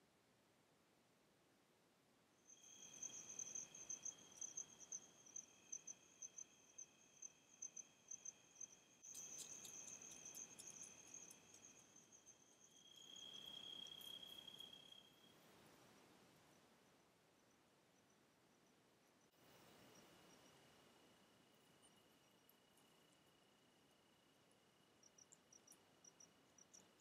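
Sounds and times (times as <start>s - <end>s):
insects trilling: 2.5s - 15.3s.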